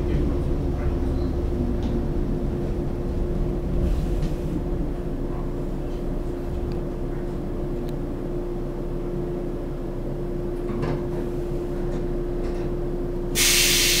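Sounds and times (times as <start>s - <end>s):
low rumble: 0.0s - 9.1s
loud hiss: 13.4s - 14.0s.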